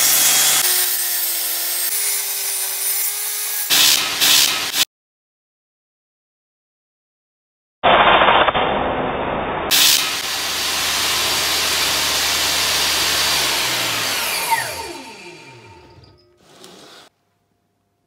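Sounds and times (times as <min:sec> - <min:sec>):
table saw running: 0:00.0 - 0:04.8, 0:09.7 - 0:17.1
saw blade spinning down whine: 0:09.7 - 0:17.1.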